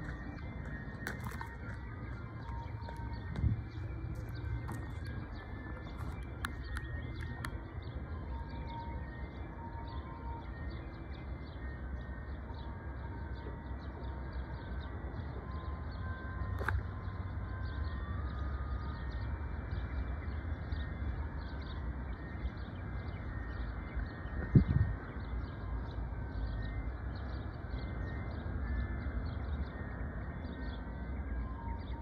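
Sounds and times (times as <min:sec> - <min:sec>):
wind rumbling on microphone: 0:00.0 - 0:07.7, 0:24.2 - 0:25.3
bird chirping: 0:00.0 - 0:32.0.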